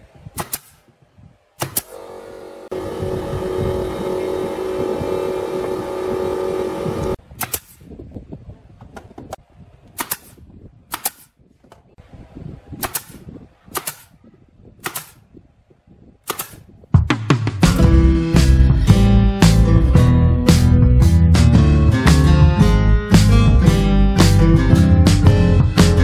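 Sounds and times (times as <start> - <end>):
nail gun firing into wood: 0.4 - 0.8, 1.6 - 2.0, 7.3 - 7.9, 9.9 - 11.4, 12.8 - 14.2, 14.8 - 15.2, 16.2 - 16.7
machine humming: 1.8 - 7.2.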